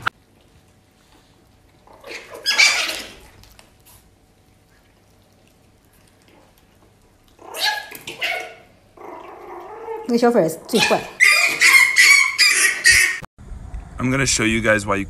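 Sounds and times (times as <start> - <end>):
puppies squeaking and scuffling: 1.9 - 4.0, 7.4 - 10.1, 10.7 - 13.3.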